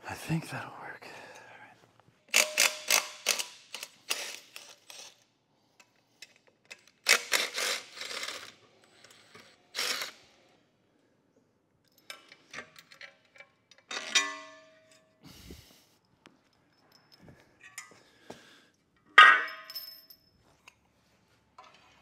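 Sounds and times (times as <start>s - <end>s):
metal parts scraping and clicking: 2.3s - 10.2s
ringing metal clank: 13.9s - 15.0s.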